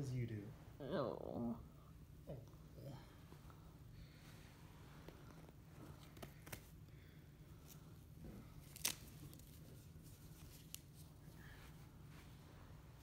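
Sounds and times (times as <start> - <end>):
bandage rustling: 7.4 - 13.0.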